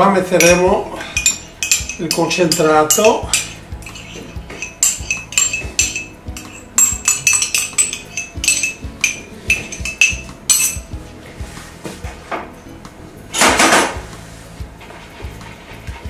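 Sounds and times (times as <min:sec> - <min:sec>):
metal spoon clinking in ceramic cup: 0:00.4 - 0:10.9.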